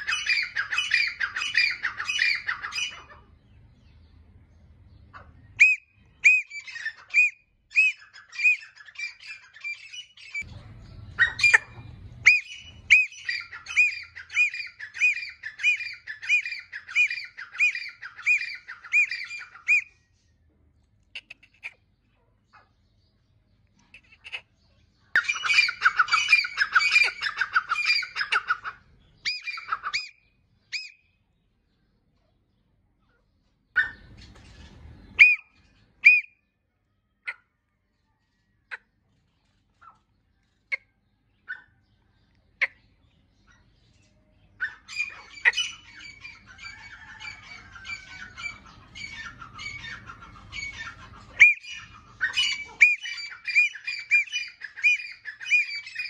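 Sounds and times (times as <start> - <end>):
bird calling shrill notes: 0.0 - 3.1, 5.6 - 20.2, 25.2 - 31.2, 35.1 - 36.5, 44.6 - 56.0.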